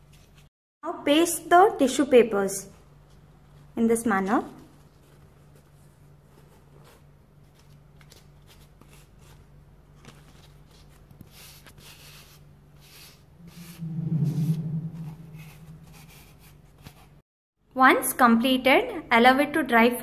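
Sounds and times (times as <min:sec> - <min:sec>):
steady low hum: 0:13.3 - 0:16.7
low rumble: 0:13.4 - 0:16.5.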